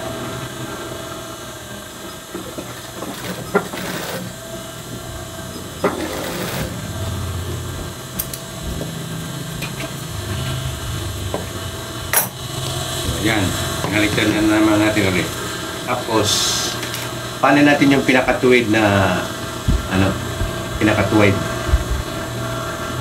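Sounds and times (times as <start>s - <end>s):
sewing machine motor humming: 2.3s - 15.3s.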